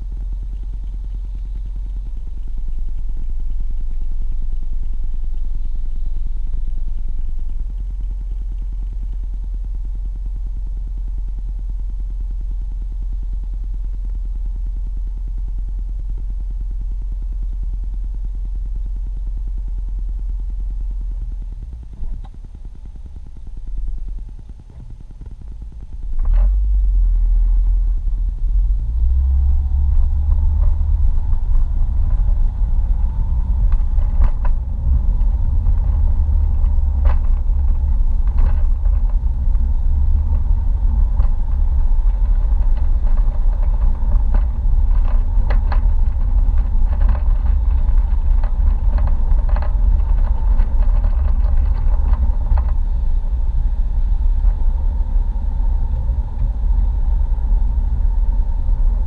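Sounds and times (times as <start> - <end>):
car driving on wet road: 21.7 - 59.0.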